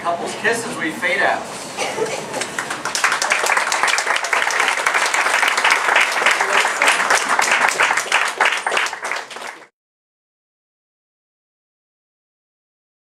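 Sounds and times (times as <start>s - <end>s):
audience applause: 2.2s - 9.7s.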